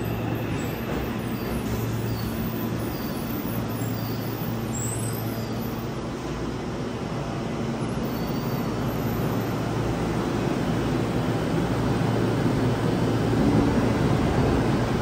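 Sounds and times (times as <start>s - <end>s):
train wheels rumbling: 0.0s - 5.4s.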